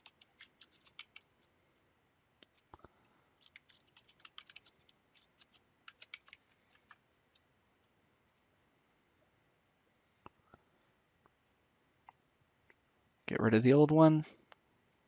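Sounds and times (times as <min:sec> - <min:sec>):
typing on keyboard: 0:00.0 - 0:01.4, 0:03.4 - 0:07.0.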